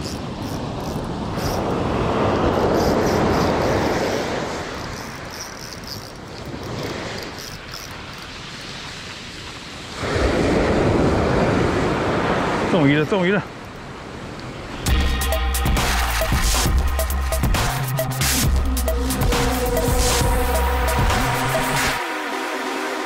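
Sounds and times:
surf breaking on the shore: 0.0 - 14.9.

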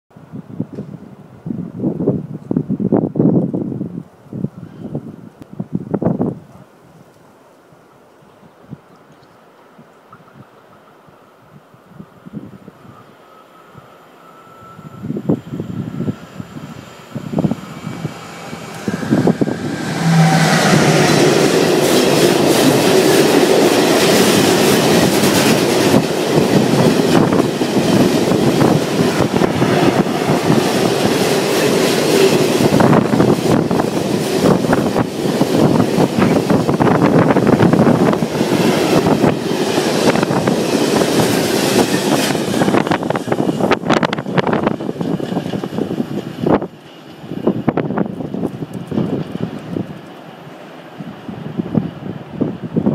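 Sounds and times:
train wheels rumbling and clattering: 15.2 - 52.9.

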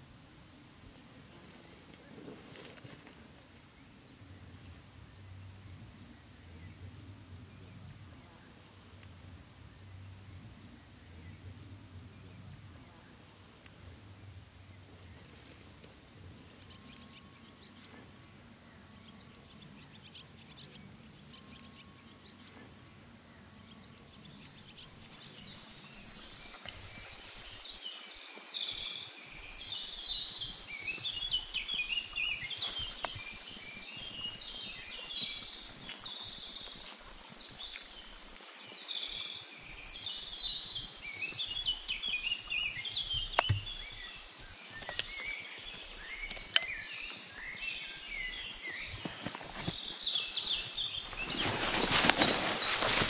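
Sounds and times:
birds singing: 3.6 - 13.5, 14.2 - 53.0
campfire popping: 43.0 - 44.2.

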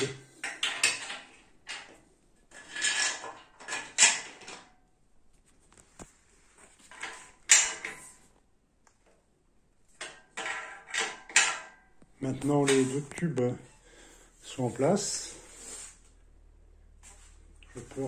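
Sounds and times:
metal tools clanking on steel frame: 0.0 - 4.7, 6.8 - 8.2, 10.0 - 13.5.

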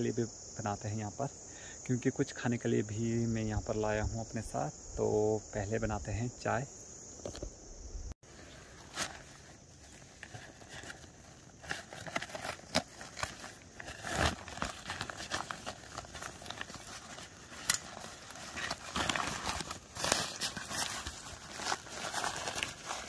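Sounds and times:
nylon sack rustling: 8.3 - 23.0.

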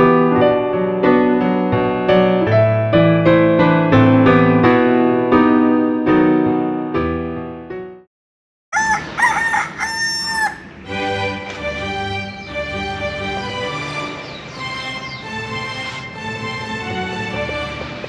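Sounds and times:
piano music: 0.0 - 8.1
rooster crowing: 8.7 - 10.8
light background music: 8.8 - 18.0.

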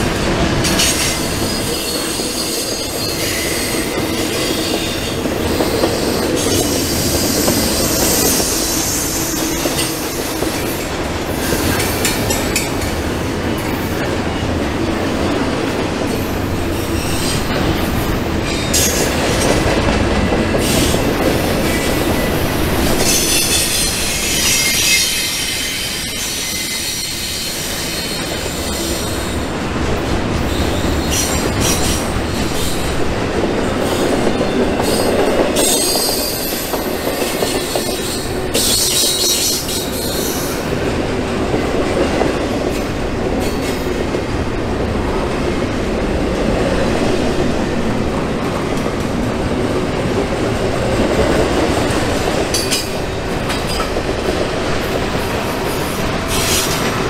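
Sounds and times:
train wheels rolling on track: 0.0 - 57.0
high wheel squeal: 0.8 - 10.4, 20.6 - 29.4.

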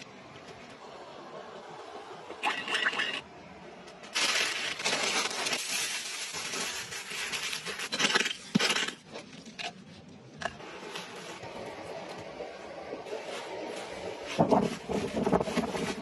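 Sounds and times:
metal blade scraping gritty soil: 2.4 - 3.3, 4.1 - 9.7.

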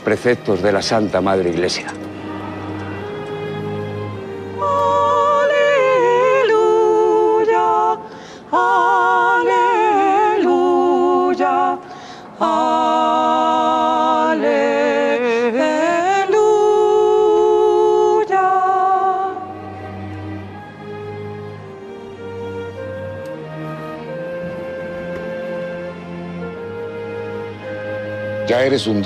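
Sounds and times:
person singing unaccompanied: 4.4 - 11.8, 12.4 - 19.7.

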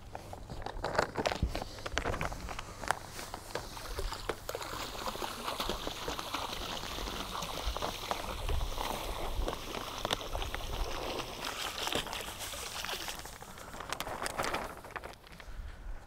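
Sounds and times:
salt crunching and tapping: 0.0 - 15.6
salt grains pouring into water: 3.6 - 15.2.

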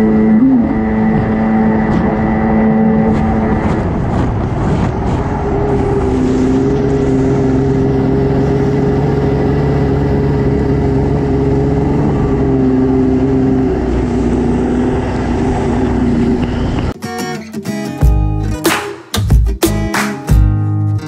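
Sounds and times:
jet ski engine running: 0.0 - 16.9
wind and water spray: 1.3 - 10.4.

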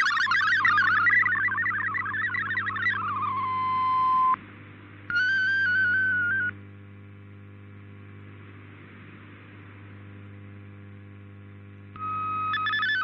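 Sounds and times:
digital data warble: 0.0 - 4.4, 5.1 - 6.5, 12.0 - 13.0
steady radio tone: 0.0 - 4.4, 5.1 - 7.0, 7.6 - 13.0
radio static with low hum: 0.0 - 13.0.

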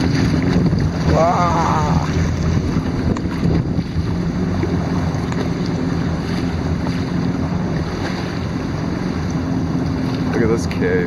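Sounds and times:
wind noise on microphone: 0.0 - 8.4
jet ski engine idling: 0.0 - 11.0.

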